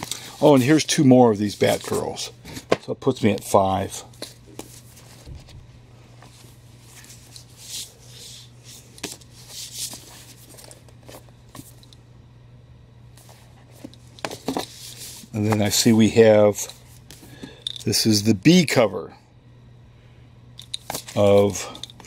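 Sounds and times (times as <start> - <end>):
paper comics rustling and sliding: 0.0 - 5.6, 6.2 - 11.8, 13.2 - 17.3
steady low hum: 0.0 - 22.0.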